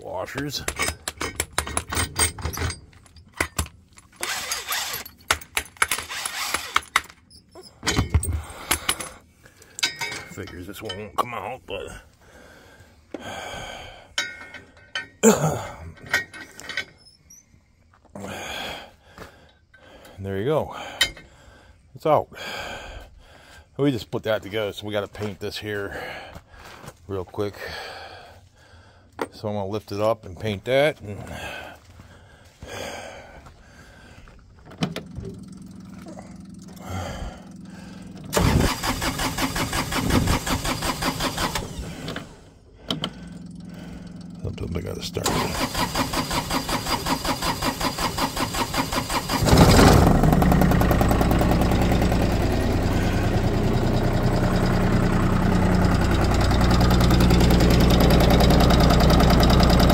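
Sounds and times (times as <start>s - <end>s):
diesel engine cranking: 0.0s - 17.4s, 33.6s - 59.9s
metal scraping and squeaking: 6.2s - 8.1s, 16.2s - 17.6s
steady low hum: 30.4s - 38.4s, 41.8s - 45.3s.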